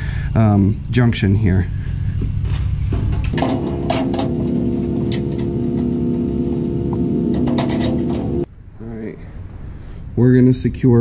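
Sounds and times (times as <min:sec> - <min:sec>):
steady hum of held tones: 0:03.4 - 0:08.5.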